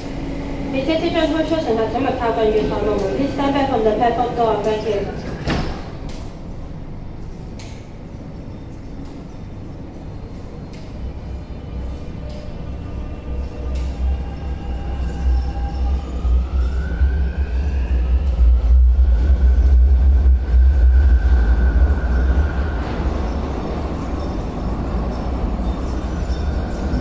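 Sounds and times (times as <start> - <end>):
train low rumble: 0.0 - 27.0
train traction motors whining: 9.8 - 27.0.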